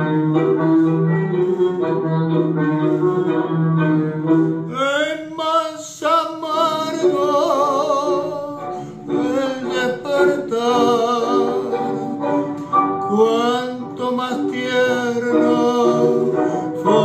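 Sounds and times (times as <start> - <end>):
backing accompaniment: 0.0 - 17.0
man singing with vibrato: 4.7 - 12.4, 13.0 - 17.0.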